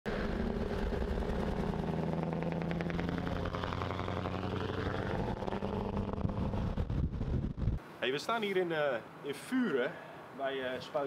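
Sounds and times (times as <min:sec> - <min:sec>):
truck engine droning: 0:00.1 - 0:07.8
tyre and road noise: 0:00.1 - 0:07.8.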